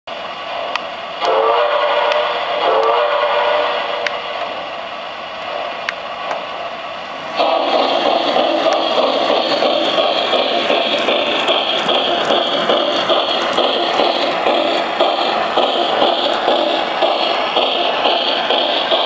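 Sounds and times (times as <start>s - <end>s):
model train running on track: 0.1s - 19.0s
toy train whistle blasts: 1.2s - 4.1s.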